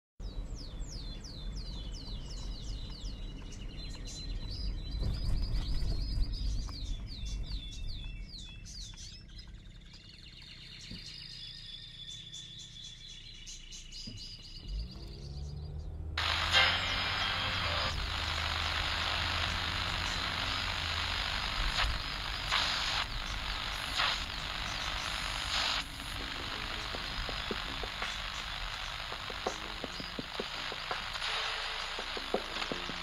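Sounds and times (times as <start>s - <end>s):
birds chirping and trilling: 0.2s - 16.4s, 18.0s - 33.0s.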